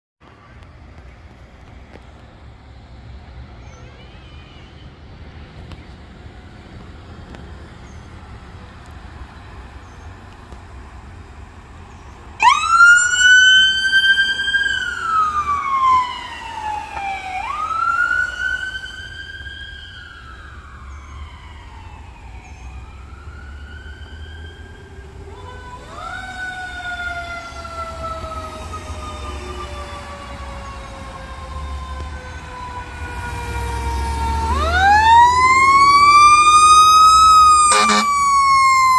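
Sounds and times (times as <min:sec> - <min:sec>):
low road rumble: 0:00.2 - 0:38.9
ambulance siren: 0:12.4 - 0:38.9
siren wailing: 0:12.4 - 0:38.9.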